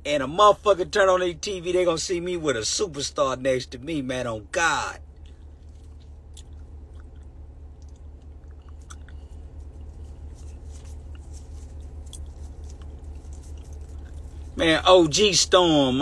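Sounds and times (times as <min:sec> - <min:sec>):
low background hum: 0:00.0 - 0:16.0
faint clicks and ticks: 0:05.1 - 0:14.6.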